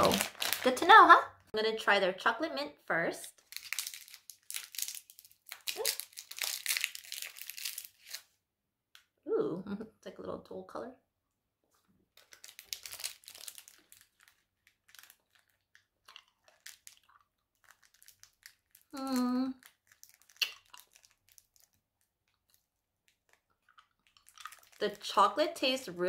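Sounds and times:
plastic wrapper crinkling: 0:00.0 - 0:01.3, 0:03.4 - 0:08.3, 0:12.2 - 0:25.4
mouth clicks sucking candy: 0:20.2 - 0:21.4.

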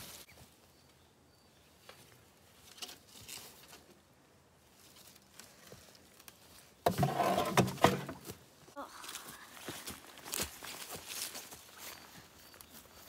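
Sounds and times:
rustling in dry leaves: 0:00.0 - 0:00.7, 0:01.8 - 0:06.8, 0:08.7 - 0:13.0.

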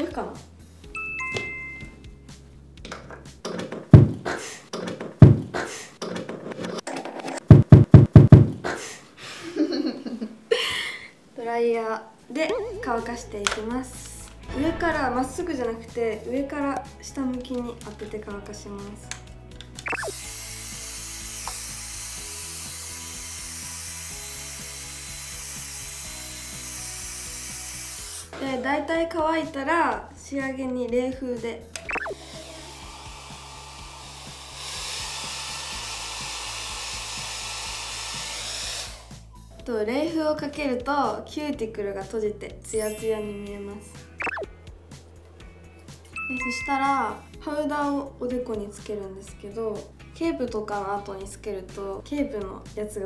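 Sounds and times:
background music: 0:00.0 - 0:05.6, 0:11.6 - 0:53.0
music with heavy percussive hits: 0:14.4 - 0:16.5
hair dryer blowing: 0:20.1 - 0:28.3, 0:32.2 - 0:39.3.

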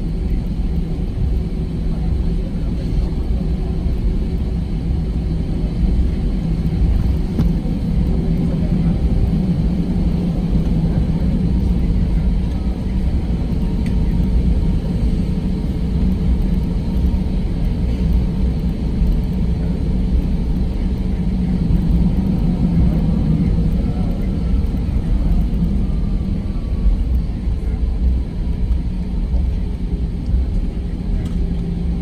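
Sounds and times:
jet engine whine: 0:00.0 - 0:32.0
low cabin rumble: 0:00.0 - 0:32.0.

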